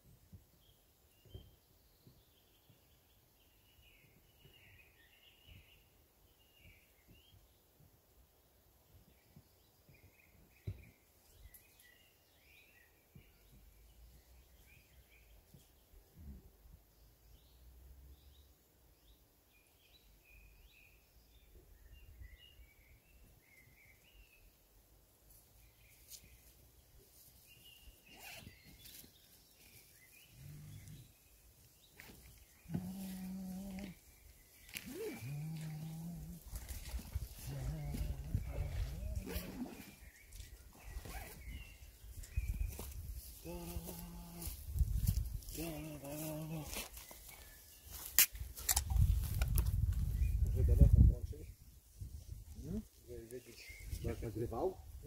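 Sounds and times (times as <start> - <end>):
small birds chirping: 25.3 - 55.0.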